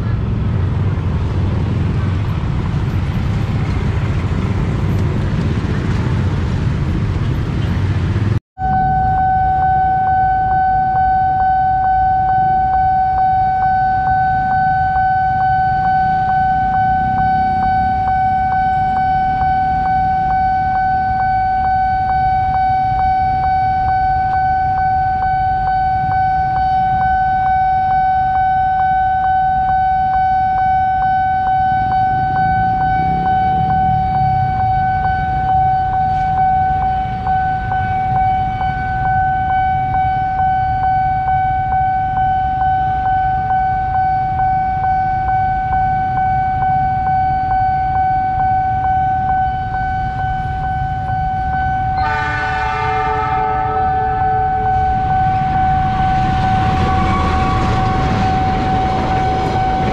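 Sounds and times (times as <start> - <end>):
motorcycles idling: 0.1 - 8.4
railroad crossing alarm tone: 7.5 - 59.9.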